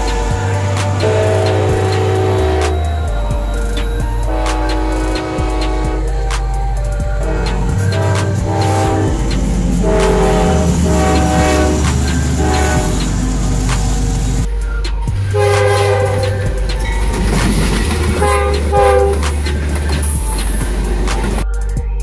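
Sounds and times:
locomotive air horn blasts: 0.0s - 3.1s, 4.2s - 6.3s, 7.1s - 14.4s, 15.3s - 16.6s, 17.6s - 20.1s
steady low rumble: 0.0s - 22.0s.

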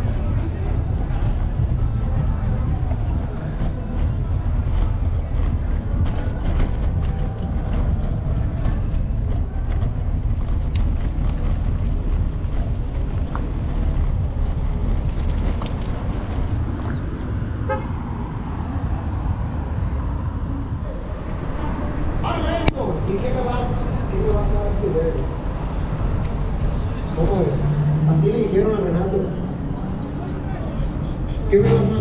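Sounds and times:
city traffic rumble: 0.0s - 32.0s
vehicle horn tooting: 17.6s - 17.9s.

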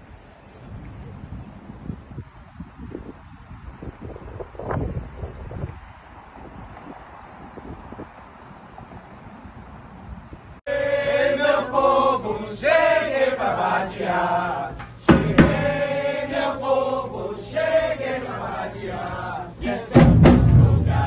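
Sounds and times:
wind on microphone: 0.0s - 12.4s
voices singing a chant: 10.7s - 21.0s
metal drums striking: 15.0s - 16.1s, 19.9s - 21.0s.

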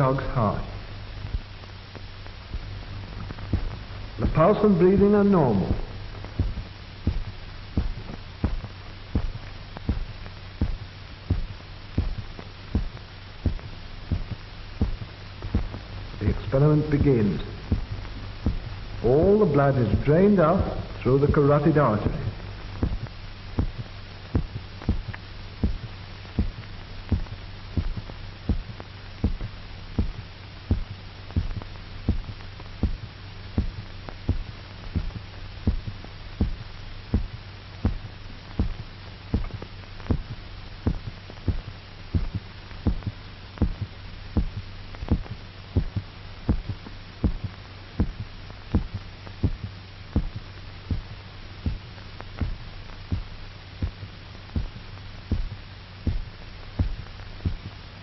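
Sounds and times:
amplified heartbeat: 0.0s - 57.8s
steady low hum: 0.0s - 58.0s.

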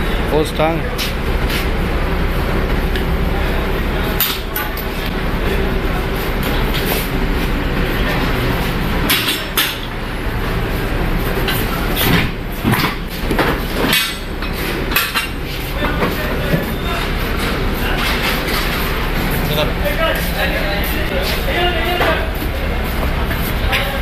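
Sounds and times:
steady mechanical hum: 0.0s - 24.0s
metal clanks and rattles: 9.0s - 9.9s, 11.4s - 16.7s.

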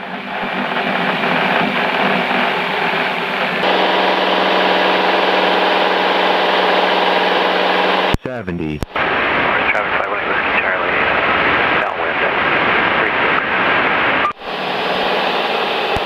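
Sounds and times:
light aircraft engine drone: 0.1s - 8.2s.

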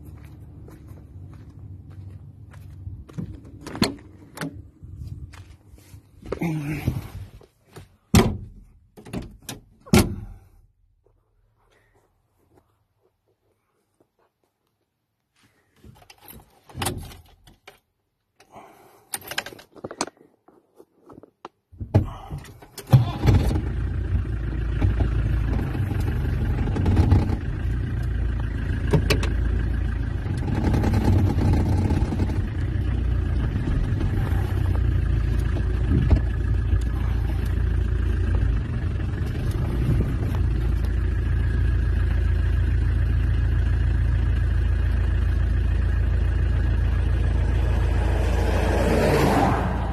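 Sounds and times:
diesel engine starting and running: 0.0s - 12.7s, 21.6s - 49.9s.

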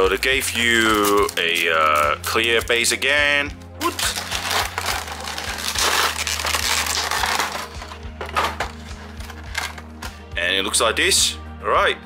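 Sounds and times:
plastic packaging crackling: 0.0s - 3.0s, 3.8s - 10.2s
background music with beat: 7.0s - 12.0s.

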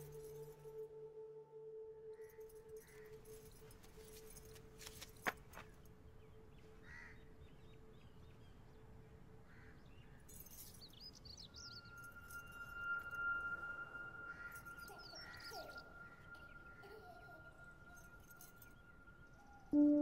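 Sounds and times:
steady tone: 0.0s - 3.2s, 11.8s - 20.0s
faint bird chirps: 9.6s - 20.0s.

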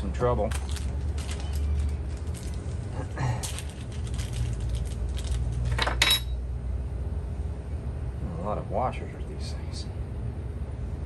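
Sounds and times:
steady low hum: 0.0s - 11.0s
metal hardware clinking: 5.7s - 6.4s.

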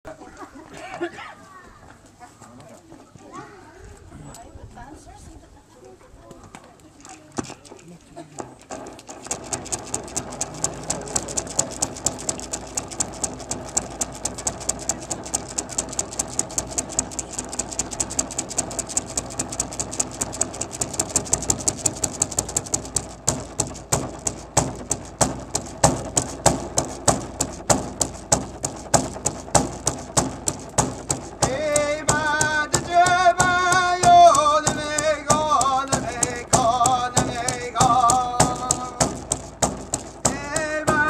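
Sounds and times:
frame drum beaten with stick: 8.4s - 41.0s.

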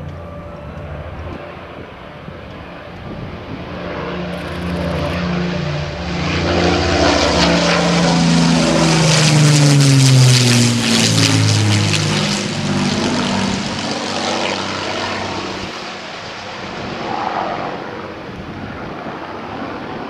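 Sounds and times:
propeller plane engines passing: 0.0s - 20.0s.

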